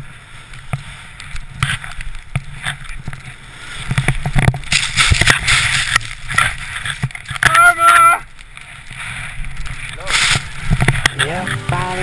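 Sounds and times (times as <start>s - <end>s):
skis hissing through powder: 9.0s - 12.0s.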